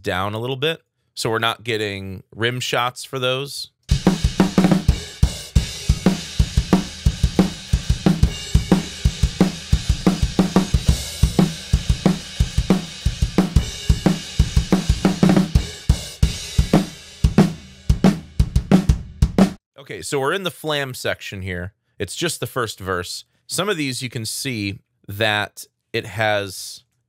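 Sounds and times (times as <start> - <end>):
drum kit playing a groove: 3.9 - 19.6.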